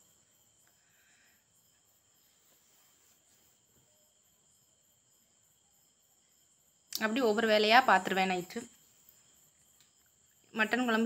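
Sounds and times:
faint cricket chirping: 0.0 - 11.0.

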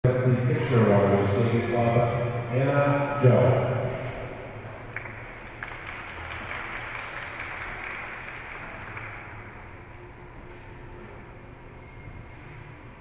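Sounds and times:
audience applauding: 4.9 - 9.5.

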